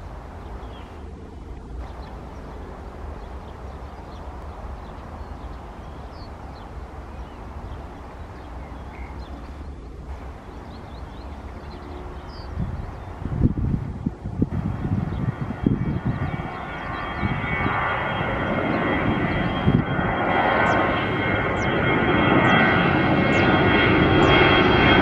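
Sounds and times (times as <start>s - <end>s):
small birds chirping: 0.0s - 13.6s, 14.6s - 19.6s
distant jet engine rumble: 0.0s - 25.0s.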